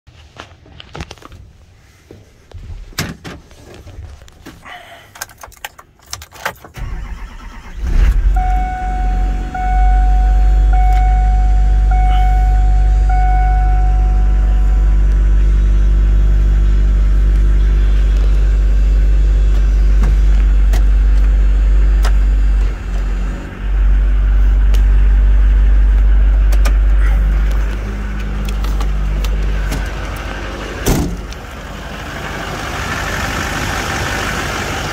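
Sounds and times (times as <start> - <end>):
diesel engine idling: 6.8 - 34.9
dashboard warning chime beeping: 8.2 - 16.3.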